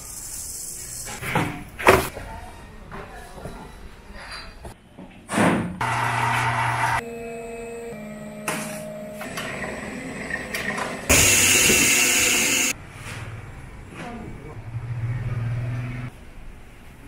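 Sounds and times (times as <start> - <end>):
machine humming: 5.8 - 12.8.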